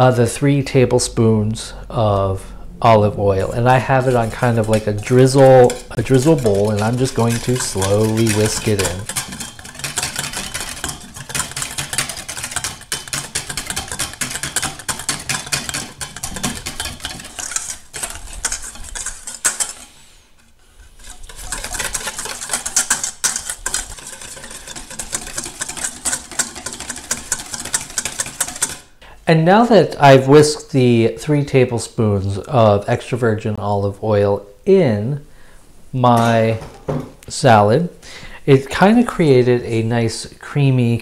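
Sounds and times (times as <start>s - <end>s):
whisk beating in metal bowl: 3.2s - 20.0s, 20.8s - 28.9s.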